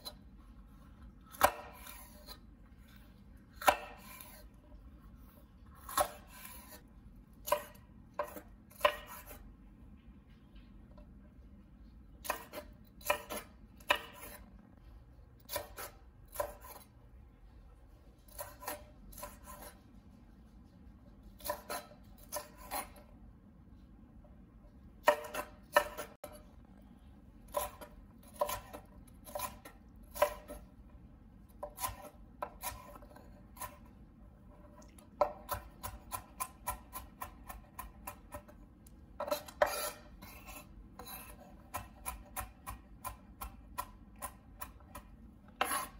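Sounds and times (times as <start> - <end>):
knife chopping on wooden board: 1.3 - 2.4, 3.5 - 4.4, 5.7 - 6.8, 7.4 - 9.4, 12.2 - 14.4, 15.4 - 16.9, 18.3 - 19.8, 21.4 - 23.0, 25.0 - 26.4, 27.5 - 30.7, 31.5 - 33.9, 34.7 - 38.6, 39.2 - 45.9.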